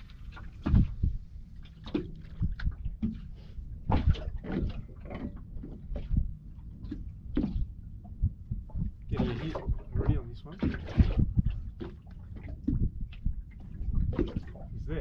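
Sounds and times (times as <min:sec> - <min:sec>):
steady low rumble: 0:00.0 - 0:15.0
fishing gear knocking in boat: 0:03.9 - 0:14.8.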